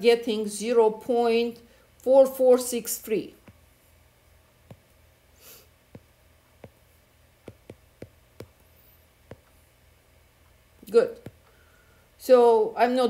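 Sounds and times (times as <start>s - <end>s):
fingertip taps on touchscreen: 3.4s - 3.6s, 4.7s - 4.9s, 5.9s - 9.6s, 11.2s - 11.5s
soft breath: 5.3s - 5.8s, 11.3s - 12.2s.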